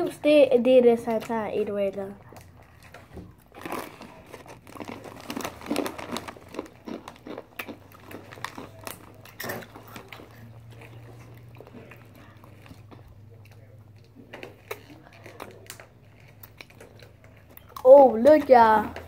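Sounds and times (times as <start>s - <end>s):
faint low hum: 0.0s - 19.0s
chips crunching and chewing: 2.2s - 17.9s
foil snack bags crinkling: 3.4s - 12.4s.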